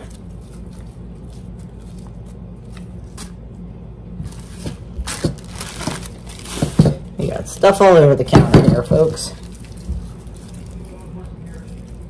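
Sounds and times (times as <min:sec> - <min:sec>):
plastic bag rustling: 0:00.0 - 0:03.2, 0:04.2 - 0:07.1, 0:09.0 - 0:12.0
steady low hum: 0:00.0 - 0:12.0
peppers peeled by hand: 0:04.2 - 0:07.1.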